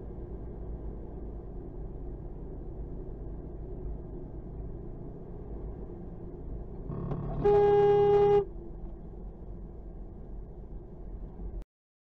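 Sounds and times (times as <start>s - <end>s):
car driving rumble: 0.0s - 11.6s
car horn: 7.1s - 8.5s.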